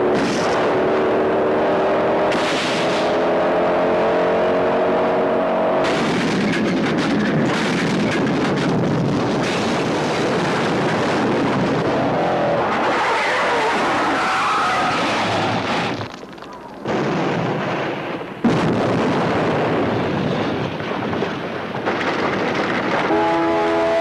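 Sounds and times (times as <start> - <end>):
engine at full throttle: 0.0 - 15.9
loud explosion: 5.8 - 16.1, 16.8 - 23.2
fire burning: 5.8 - 23.3.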